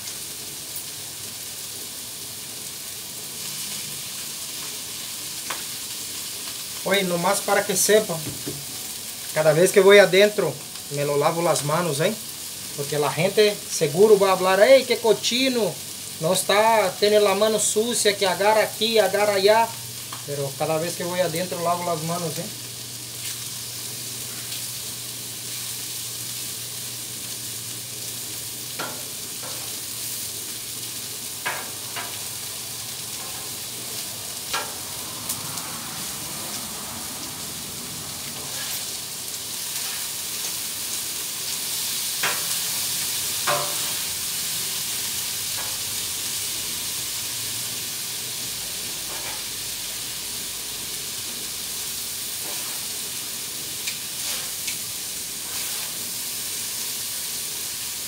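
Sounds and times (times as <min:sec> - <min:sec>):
food sizzling on a griddle: 0:00.0 - 0:58.0
metal spatula scraping steel: 0:38.4 - 0:38.9, 0:52.4 - 0:52.8, 0:54.2 - 0:54.7, 0:55.4 - 0:56.0.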